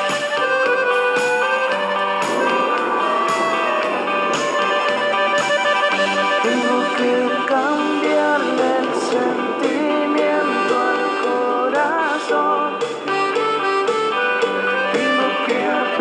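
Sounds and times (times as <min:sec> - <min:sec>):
guitar melody: 0:00.0 - 0:16.0
instrumental band music: 0:00.0 - 0:16.0.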